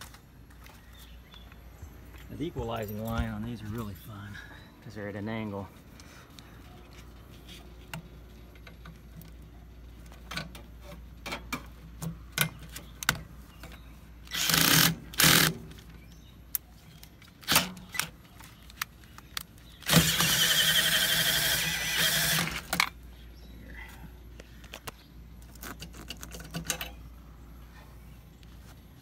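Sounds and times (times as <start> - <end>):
cordless drill running: 14.3 - 15.5, 19.8 - 22.7.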